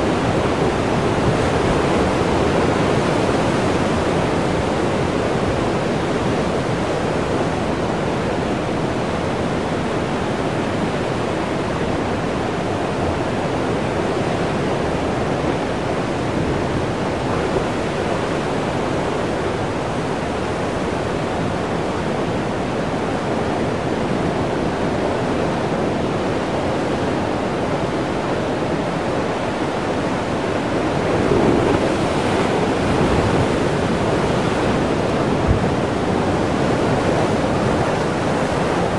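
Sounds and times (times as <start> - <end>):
surf crashing over rocks: 28.6 - 38.9.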